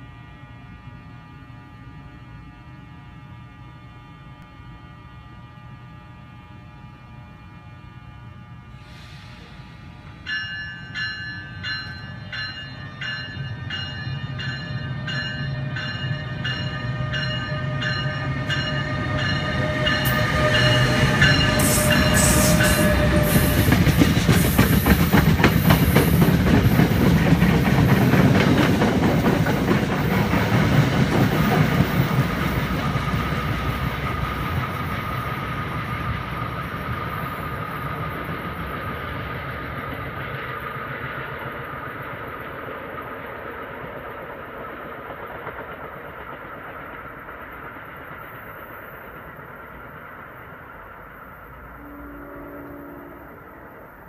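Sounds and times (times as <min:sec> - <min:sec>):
electric locomotive hum and whine: 0:00.0 - 0:54.0
locomotive bell ringing: 0:10.2 - 0:24.3
train wheels clattering: 0:10.3 - 0:39.0.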